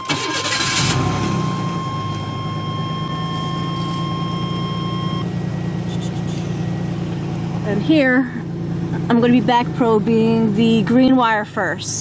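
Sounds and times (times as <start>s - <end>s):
car engine starting and idling: 0.0s - 12.0s
thin high tone: 3.1s - 4.9s.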